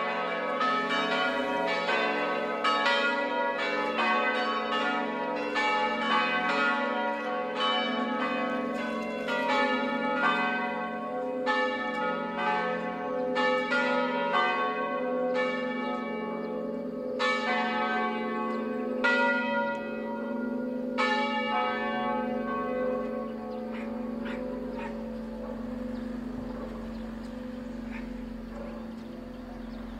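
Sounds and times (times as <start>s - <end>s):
church bells ringing: 0.0s - 29.9s
low bell hum: 24.2s - 29.9s.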